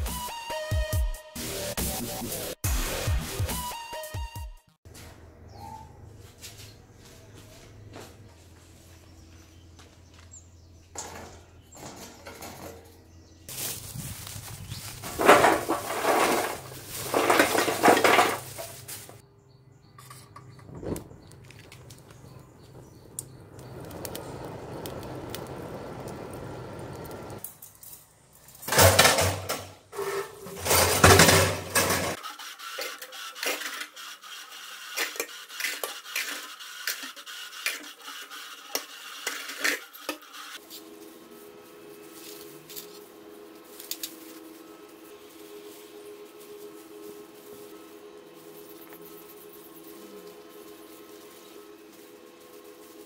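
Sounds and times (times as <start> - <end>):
metal grill clattering: 15.0 - 18.9, 28.5 - 32.2.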